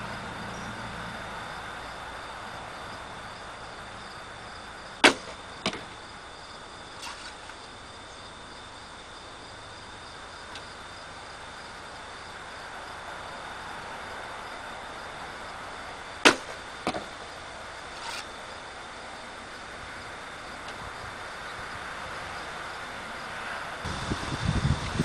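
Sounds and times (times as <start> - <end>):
crickets chirring: 0.0 - 25.0
arrow striking target: 5.0 - 5.9, 16.2 - 17.1.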